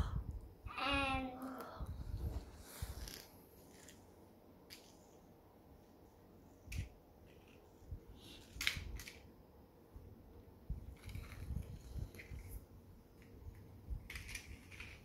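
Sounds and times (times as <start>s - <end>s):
toy vehicles clicking and tapping: 8.4s - 9.2s, 13.2s - 15.0s.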